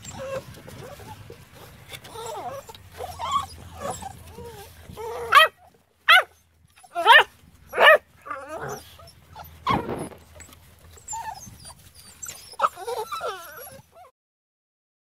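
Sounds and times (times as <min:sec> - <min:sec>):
puppies whining and yelping: 0:00.0 - 0:14.1.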